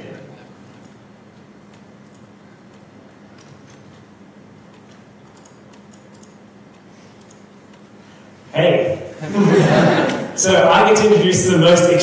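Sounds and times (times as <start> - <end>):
steady low hum: 0.0 - 12.0
laptop keys clicking: 4.7 - 7.8.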